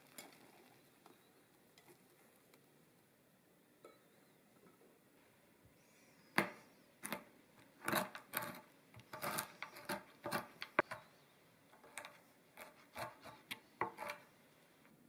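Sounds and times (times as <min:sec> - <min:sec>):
knife chopping nuts on board: 0:06.4 - 0:11.1, 0:11.8 - 0:14.2.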